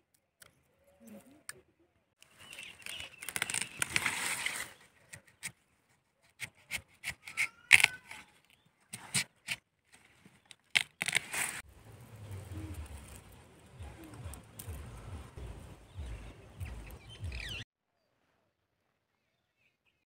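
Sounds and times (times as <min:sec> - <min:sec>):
plant stems rustling: 0:02.2 - 0:05.5, 0:09.9 - 0:15.2
sharp clicks and scrapes: 0:06.2 - 0:11.6.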